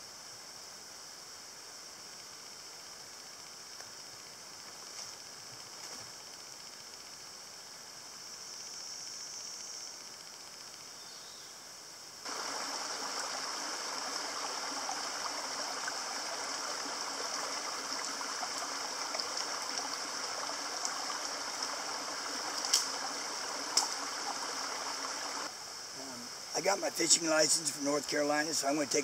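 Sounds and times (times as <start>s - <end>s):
high-pitched hiss: 0.0s - 29.0s
creek trickling over rocks: 12.2s - 25.5s.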